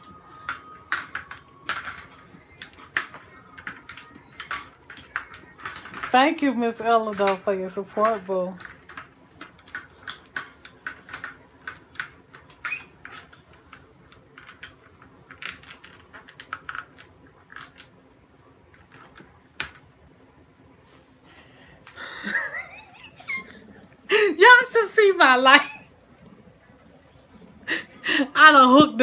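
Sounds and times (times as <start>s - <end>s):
plastic parts clicking: 0.0s - 18.0s.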